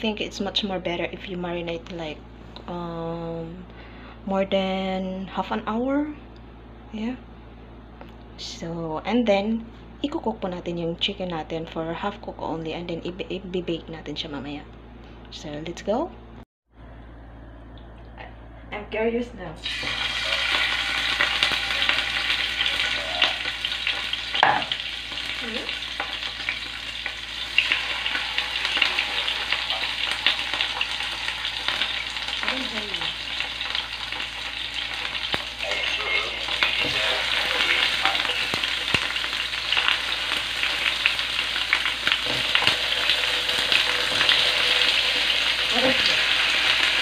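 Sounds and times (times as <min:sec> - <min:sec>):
chicken sizzling in hot oil: 0:19.6 - 0:47.0.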